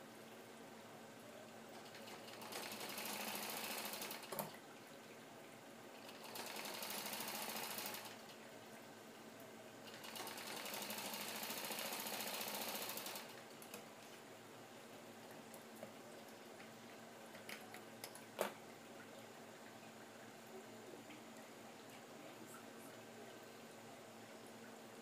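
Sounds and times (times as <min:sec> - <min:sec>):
sewing machine stitching: 0:01.9 - 0:04.5, 0:06.0 - 0:08.2, 0:09.9 - 0:13.3.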